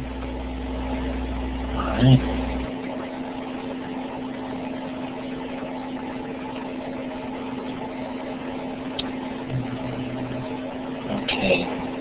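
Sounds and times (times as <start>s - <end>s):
microphone hum and hiss: 0.0s - 3.8s, 7.2s - 12.0s
low hum tone: 0.0s - 12.0s.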